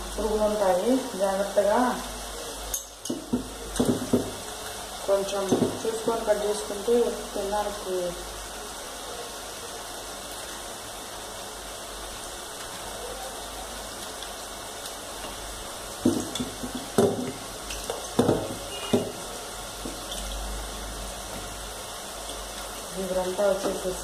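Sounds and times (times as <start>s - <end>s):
faint room noise: 0.0s - 24.0s
knocks on steel bowl: 16.0s - 17.4s, 18.2s - 19.2s.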